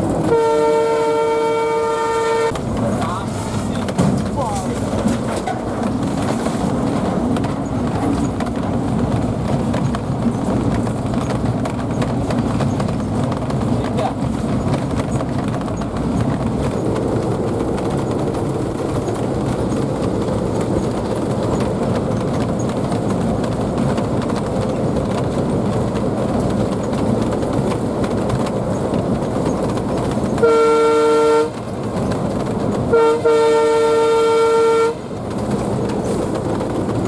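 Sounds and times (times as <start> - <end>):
locomotive engine and wheel rumble: 0.0 - 37.0
locomotive horn blast: 0.2 - 2.6, 30.4 - 31.6, 32.9 - 35.1.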